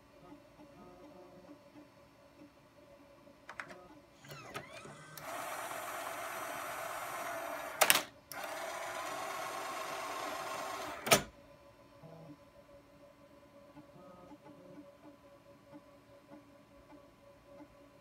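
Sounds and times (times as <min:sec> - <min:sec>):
mechanical whirr: 0:04.2 - 0:11.3.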